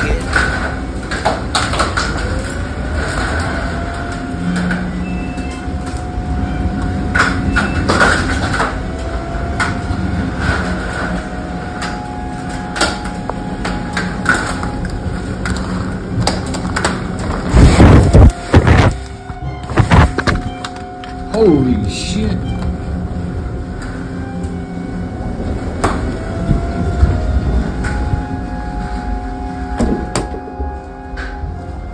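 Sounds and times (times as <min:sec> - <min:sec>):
storm wind buffeting a vehicle: 0:00.0 - 0:31.9
wind whistle gliding up: 0:17.5 - 0:31.9.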